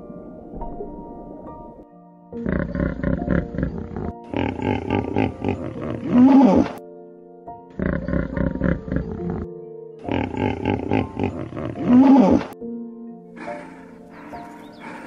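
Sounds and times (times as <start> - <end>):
background music with held notes: 0.0 - 15.0
deep rough animal roars: 2.4 - 6.8, 7.8 - 9.5, 10.1 - 12.6.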